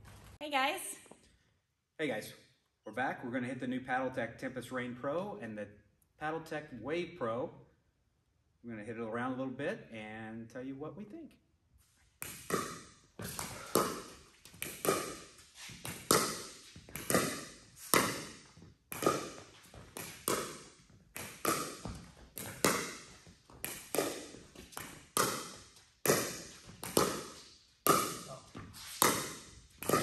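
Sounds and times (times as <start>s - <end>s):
ball bouncing on court: 12.2s - 30.0s
pickleball hits off paddles: 12.2s - 30.0s.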